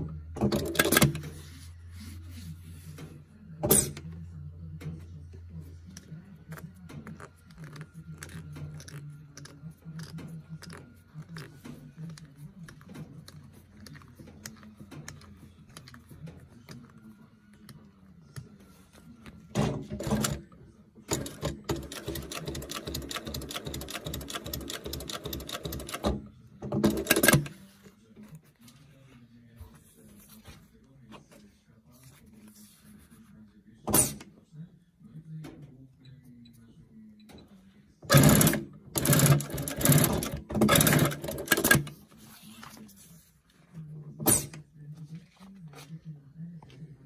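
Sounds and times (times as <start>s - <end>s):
sewing machine stitching: 0.4s - 1.3s, 19.6s - 20.4s, 21.1s - 27.5s, 38.1s - 41.9s
sewing machine clatter: 21.1s - 27.5s, 38.1s - 41.9s.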